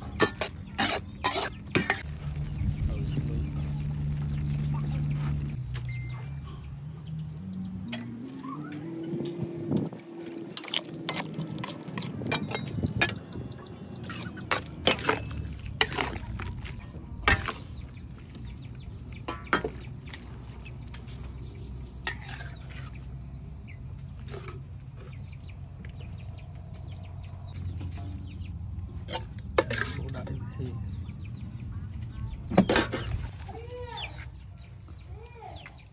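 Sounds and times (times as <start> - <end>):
metal spatula scraping wok: 0.0 - 2.1, 14.0 - 16.6, 21.0 - 23.1, 29.0 - 30.3.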